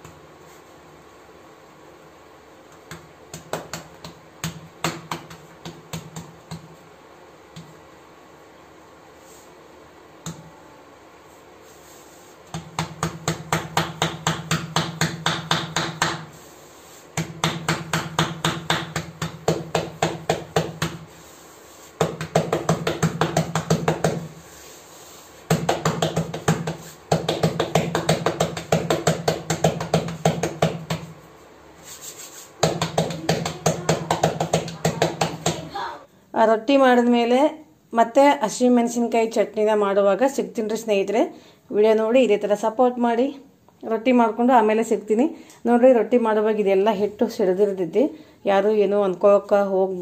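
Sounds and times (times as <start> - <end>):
dough slapped by hand: 2.7 - 6.9, 7.5 - 7.8, 12.4 - 16.4, 17.1 - 21.2, 21.8 - 24.4, 25.4 - 31.3, 32.5 - 35.8.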